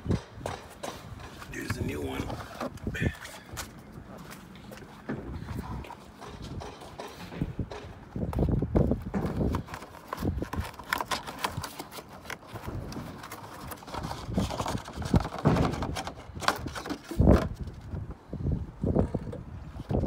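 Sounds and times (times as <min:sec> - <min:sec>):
cardboard box being handled: 0:09.2 - 0:17.7.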